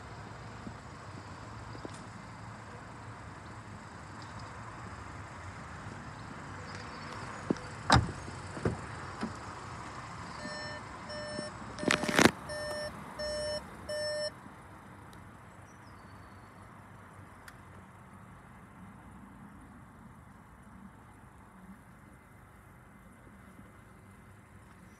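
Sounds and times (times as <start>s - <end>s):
car warning chime beeping: 10.3s - 14.4s.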